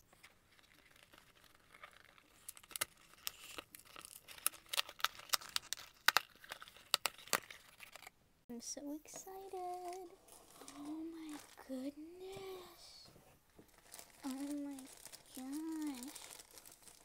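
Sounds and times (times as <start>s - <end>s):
packing tape tearing off cardboard: 13.7s - 17.0s.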